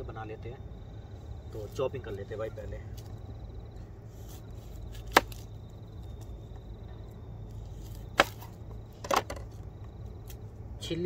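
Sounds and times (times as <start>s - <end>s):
knife chopping vegetables: 4.2s - 5.4s, 8.2s - 8.6s.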